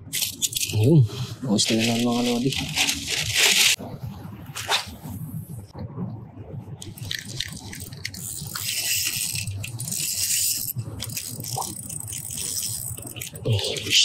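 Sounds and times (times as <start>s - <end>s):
fishing reel whirring and clicking: 6.8s - 13.9s.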